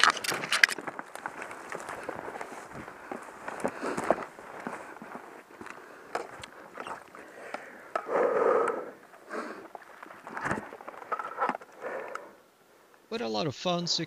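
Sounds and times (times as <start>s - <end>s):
gear clicks and knocks: 0.0s - 2.5s
rustling through undergrowth: 0.0s - 7.4s.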